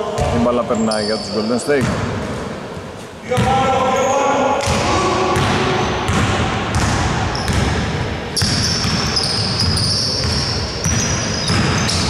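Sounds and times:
basketball bouncing on wooden floor: 0:05.4 - 0:12.0
thin high squeak: 0:08.6 - 0:10.3.

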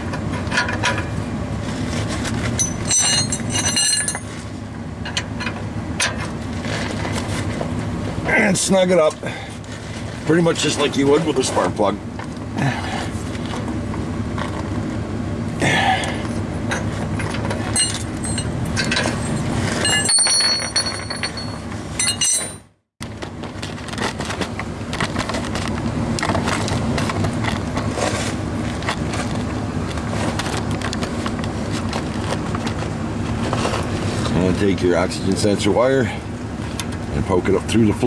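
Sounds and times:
metal clicks and clinks: 0:02.6 - 0:04.3, 0:16.7 - 0:22.6.

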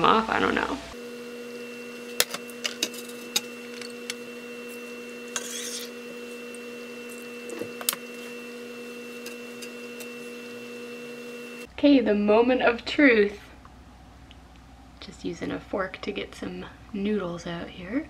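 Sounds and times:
metal tongs scraping ceramic bowl: 0:05.3 - 0:06.0.

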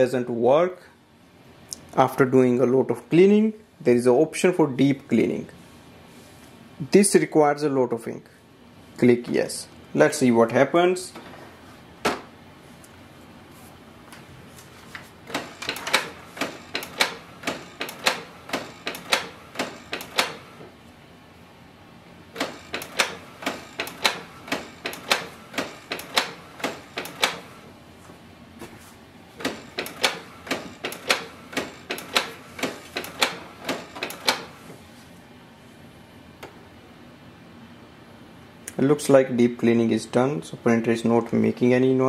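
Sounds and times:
printer mechanism clicking: 0:15.3 - 0:20.7, 0:22.4 - 0:27.6, 0:29.4 - 0:34.7.

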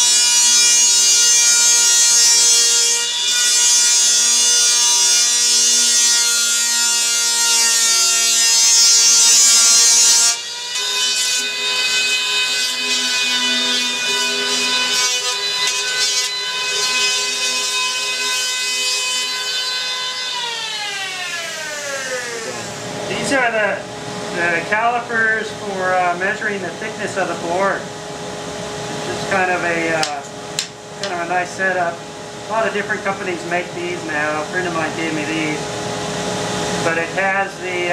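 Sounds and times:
electric planer motor whine: 0:04.8 - 0:23.0.

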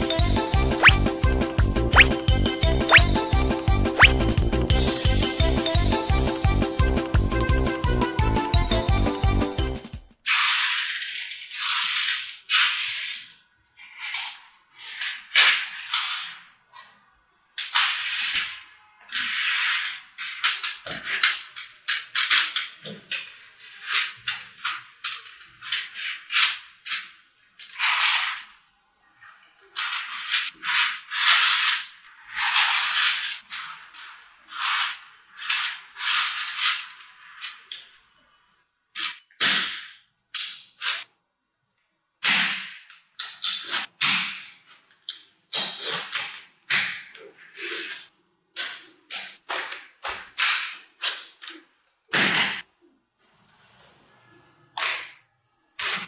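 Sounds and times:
magnetic balls clicking and rattling: 0:00.7 - 0:03.2.

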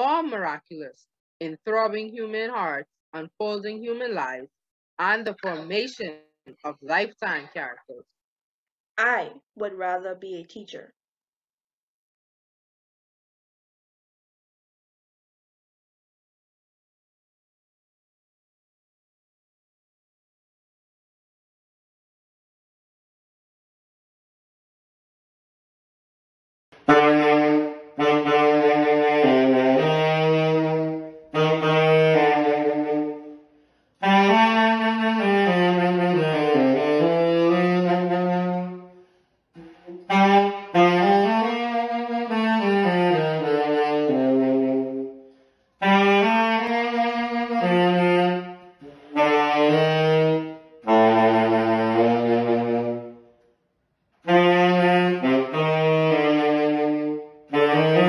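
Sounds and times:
tenor saxophone melody: 0:26.8 - 0:53.4, 0:54.2 - 0:58.0.

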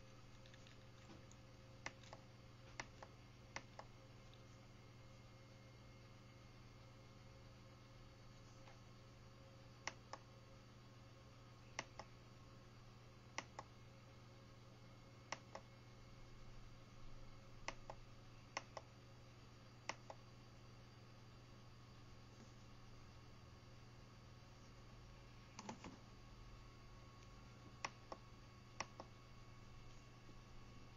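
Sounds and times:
low electrical hum: 0:00.0 - 0:30.9.

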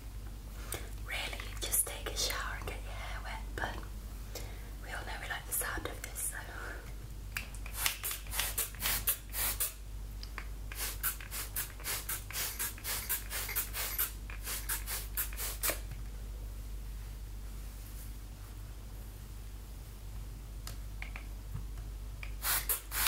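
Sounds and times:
spray bottle spritzing: 0:07.7 - 0:09.8, 0:10.7 - 0:15.8, 0:22.4 - 0:23.0.

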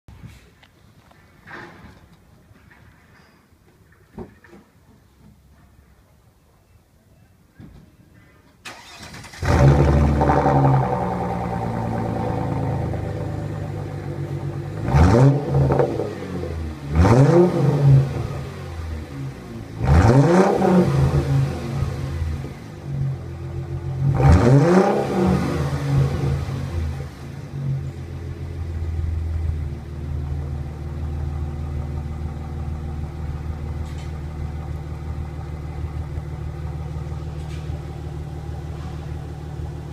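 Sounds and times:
car engine starting and idling: 0:08.6 - 0:39.9
car engine revving: 0:08.7 - 0:27.8.

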